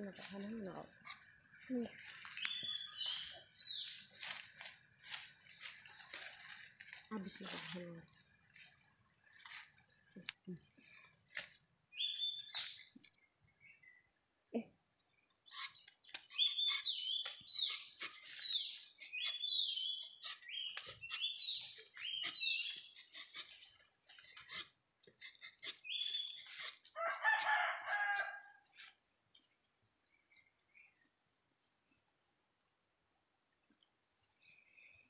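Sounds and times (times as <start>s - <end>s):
high chirping calls: 0.4s - 4.4s, 15.4s - 23.5s, 25.2s - 26.7s
faint insect drone: 3.6s - 16.0s, 26.4s - 35.0s
rooster crowing: 27.0s - 28.6s.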